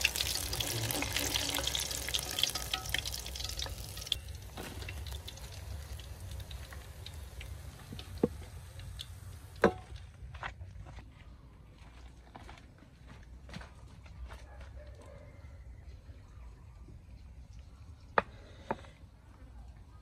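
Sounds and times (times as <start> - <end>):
water dripping: 0.0 - 9.7
water pouring: 0.0 - 9.7.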